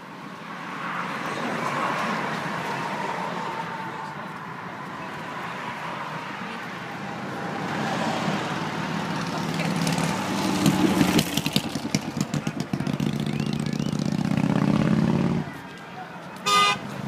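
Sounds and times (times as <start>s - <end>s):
cars driving past: 0.0s - 17.0s
vehicle passing close by: 0.6s - 15.6s.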